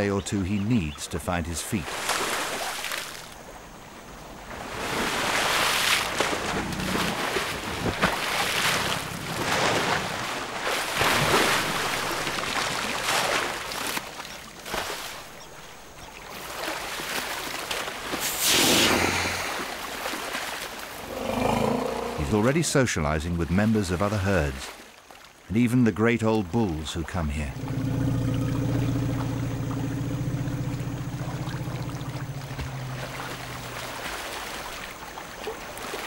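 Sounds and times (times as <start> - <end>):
elephants splashing in water: 1.8 - 3.4, 4.4 - 15.4, 27.1 - 36.0.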